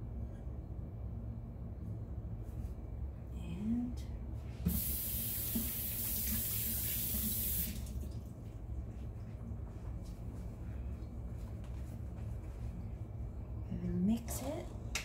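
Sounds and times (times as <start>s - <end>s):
water running from a tap: 4.7s - 8.2s.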